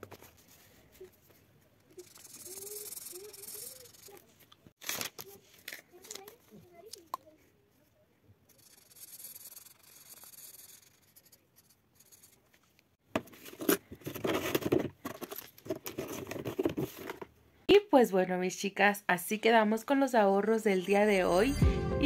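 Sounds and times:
paper envelopes and banknotes crinkling: 3.2s - 7.0s.

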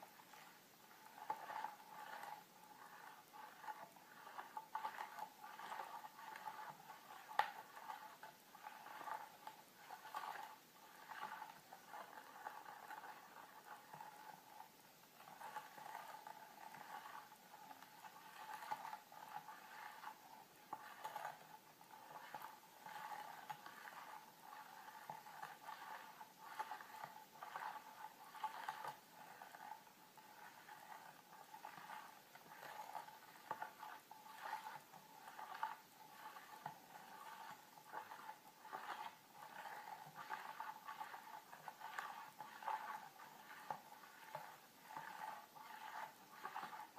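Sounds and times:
metal spoon scraping a bowl: 0.1s - 46.9s.

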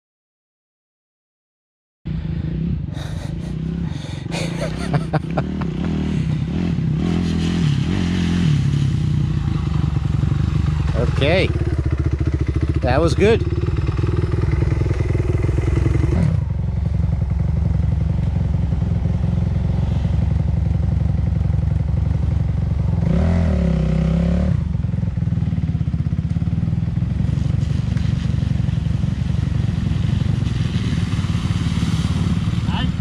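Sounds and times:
dirt bike engine idling: 2.1s - 33.0s.

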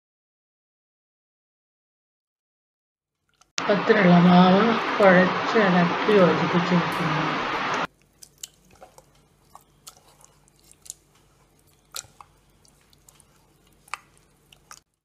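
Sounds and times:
wet squelches of batter: 3.2s - 3.5s, 7.8s - 15.0s
loud rushing noise: 3.6s - 7.9s.

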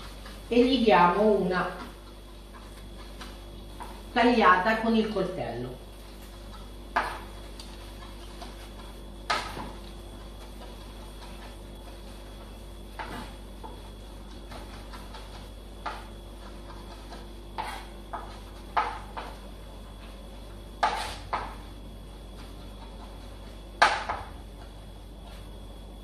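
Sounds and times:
knife chopping on cutting board: 14.4s - 19.4s, 20.8s - 21.6s.

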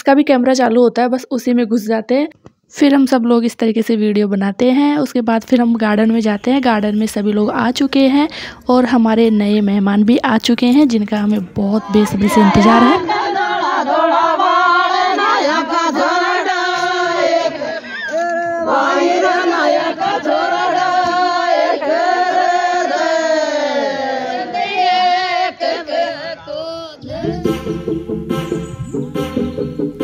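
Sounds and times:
women singing folk song: 11.3s - 26.2s.

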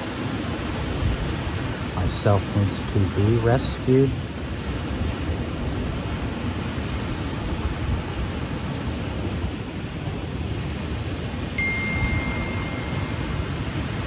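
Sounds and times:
ocean surf: 0.0s - 14.0s
wind: 0.0s - 14.0s
high chime-like tone: 11.6s - 14.0s.

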